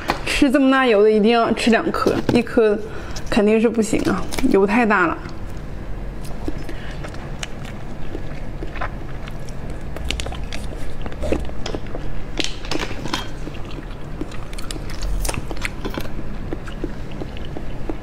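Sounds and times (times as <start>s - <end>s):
mouth slurping and chewing jelly: 6.2s - 12.2s, 12.8s - 18.0s.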